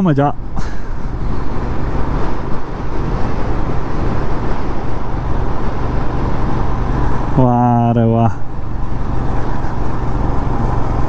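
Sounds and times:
motorcycle engine hum: 0.0 - 11.0
road noise on wet road: 0.0 - 11.0
wind noise: 0.4 - 7.4.

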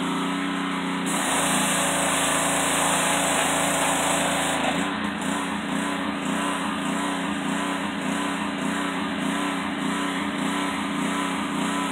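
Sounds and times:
pressure washer engine running: 0.0 - 11.9.

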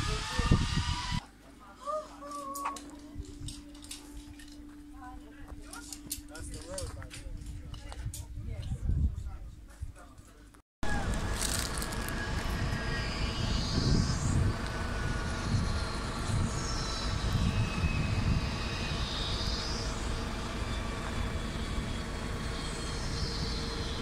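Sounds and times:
wind on microphone: 0.0 - 1.2, 6.5 - 10.0, 11.0 - 20.3
zipline trolley whine: 0.0 - 1.2, 2.3 - 6.9, 10.8 - 24.0.

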